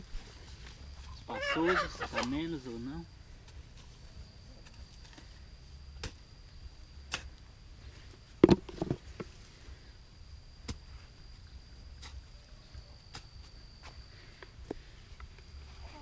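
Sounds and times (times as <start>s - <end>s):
knocks and thuds: 8.4s - 9.3s.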